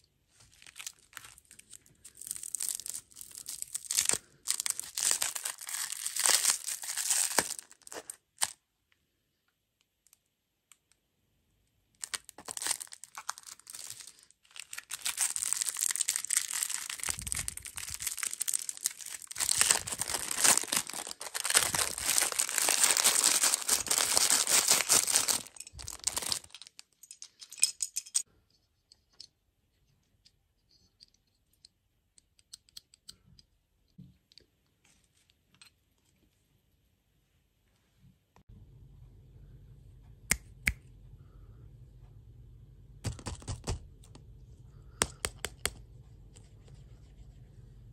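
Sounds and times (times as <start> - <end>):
plastic wrapper crinkling: 0.4 - 8.6, 12.0 - 27.2.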